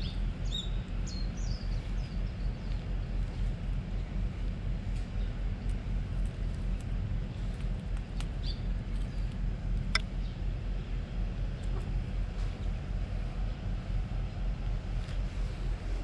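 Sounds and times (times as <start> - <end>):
low outdoor rumble: 0.0 - 16.0.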